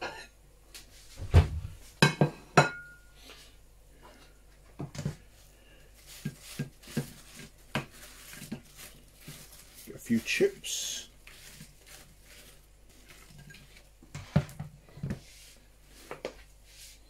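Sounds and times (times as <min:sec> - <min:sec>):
crockery knocking and clinking: 0:02.0 - 0:03.0.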